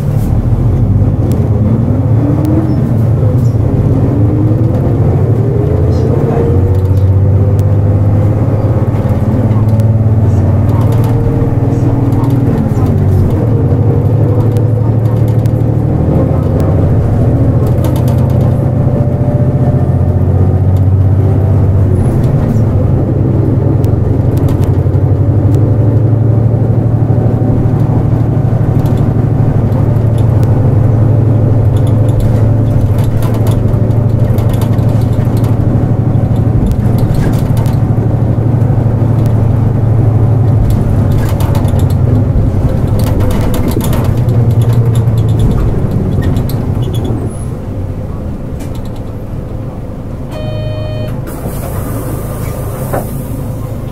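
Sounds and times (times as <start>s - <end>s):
bus diesel engine drone: 0.0s - 53.9s
cabin rattles and clicks: 31.6s - 38.0s, 40.5s - 47.2s.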